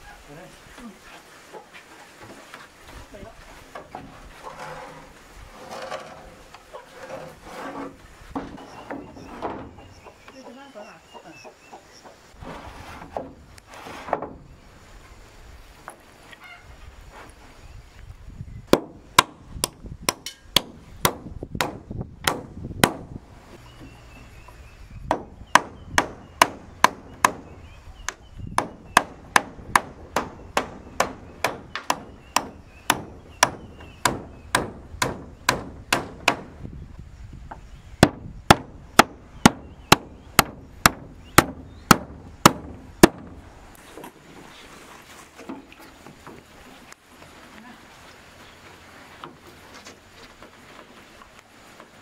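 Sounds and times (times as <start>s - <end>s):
hammer on corrugated metal roofing: 18.7s - 23.2s, 25.0s - 27.6s, 28.5s - 36.6s, 38.0s - 43.4s.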